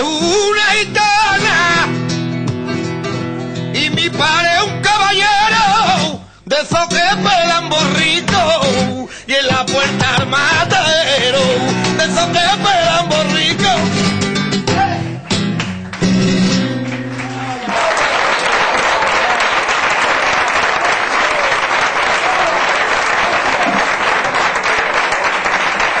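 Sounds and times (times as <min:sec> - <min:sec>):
flamenco guitar strumming: 0:00.0 - 0:17.6
audience applauding: 0:15.2 - 0:26.0.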